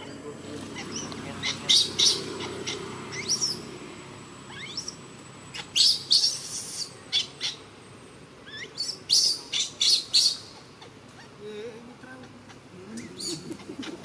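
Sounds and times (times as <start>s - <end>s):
baby monkey squealing: 0.7s - 3.7s, 4.4s - 7.6s, 8.4s - 11.4s, 12.2s - 14.0s.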